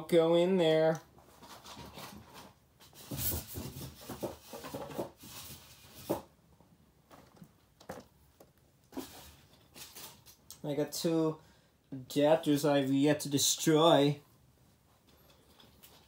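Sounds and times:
plastic pieces rustling and clattering: 0:09.0 - 0:10.5.

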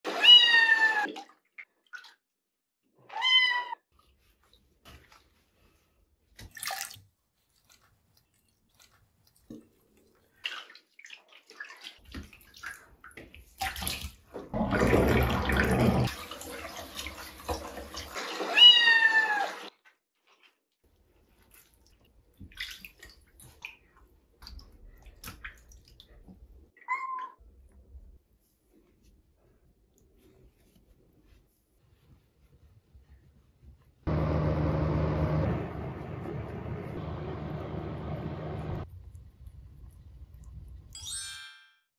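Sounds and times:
water splashing in sink: 0:00.0 - 0:02.4, 0:04.4 - 0:19.7, 0:21.2 - 0:27.3
kitten meowing loudly: 0:00.2 - 0:01.1, 0:03.1 - 0:03.8, 0:18.5 - 0:19.5.

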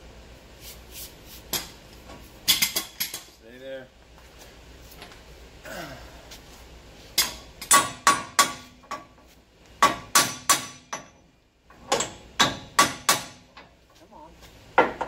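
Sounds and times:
hammer striking steel: 0:07.2 - 0:09.1, 0:09.8 - 0:11.2, 0:12.0 - 0:13.5.

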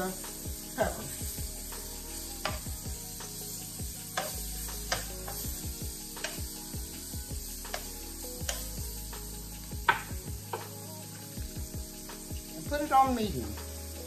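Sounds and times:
onion rings sizzling in oil: 0:00.0 - 0:14.0
metal spoon scraping a pan: 0:00.3 - 0:11.4.

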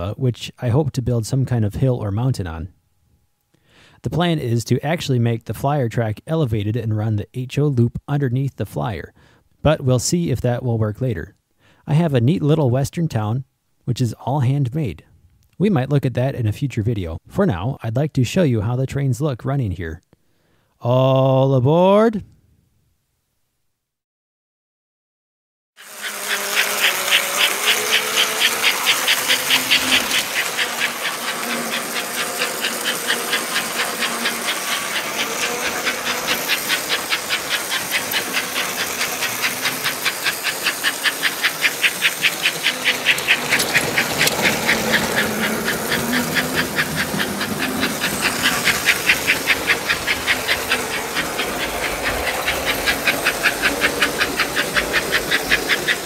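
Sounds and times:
model steam train chuffing: 0:25.8 - 0:56.0.

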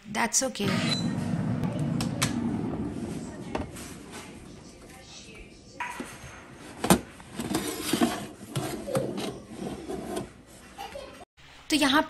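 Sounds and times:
metal tray scraping on oven rack: 0:06.0 - 0:10.4.

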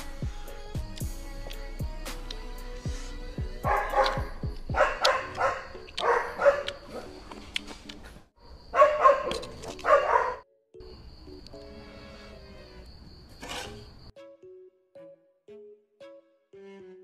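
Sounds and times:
dog barking: 0:03.6 - 0:07.2, 0:08.7 - 0:10.4.

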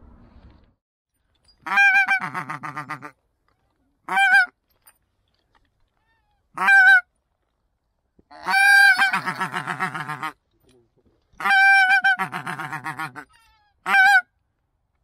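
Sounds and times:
goose honking: 0:08.4 - 0:10.4, 0:11.4 - 0:14.2.

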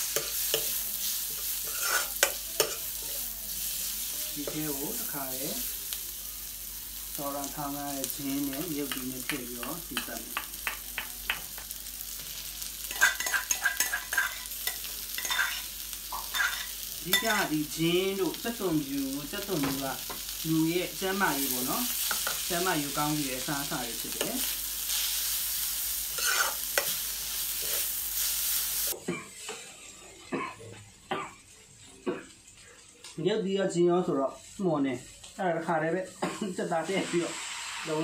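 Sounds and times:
onions sizzling in oil: 0:00.0 - 0:38.0
metal ladle scraping wok: 0:01.3 - 0:02.9, 0:12.9 - 0:17.4, 0:26.1 - 0:26.9, 0:36.9 - 0:38.0.

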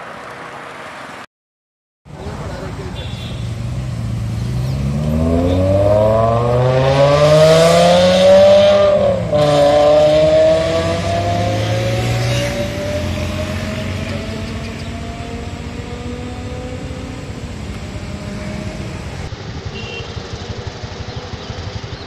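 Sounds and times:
car accelerating hard: 0:03.7 - 0:19.3.

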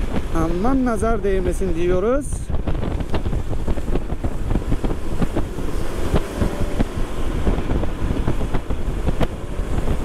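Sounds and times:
wind rumble on microphone: 0:00.0 - 0:10.0
tyre noise on wet road: 0:02.6 - 0:10.0.

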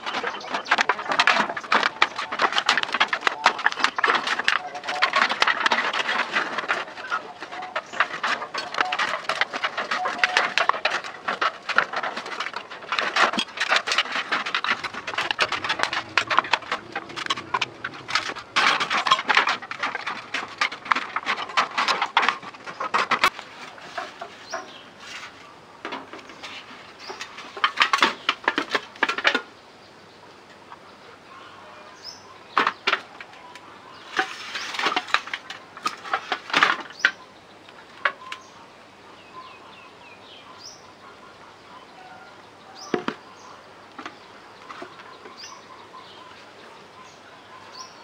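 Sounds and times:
sheets crackling and rustling: 0:00.0 - 0:29.4, 0:32.6 - 0:37.2.

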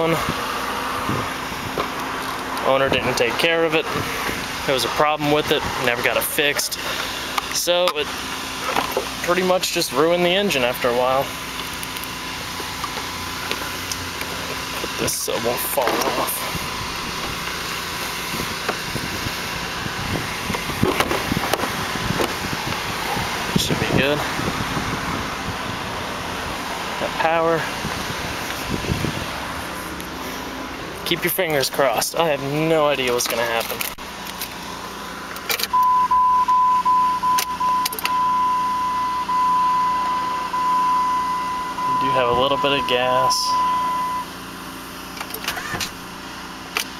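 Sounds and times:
street noise: 0:00.0 - 0:46.9
high electronic warning tone: 0:35.7 - 0:44.4.

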